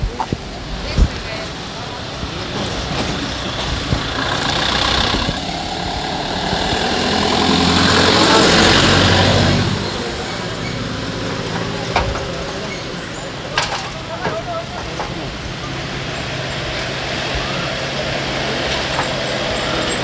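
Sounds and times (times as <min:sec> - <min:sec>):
truck driving past: 0:01.6 - 0:14.2.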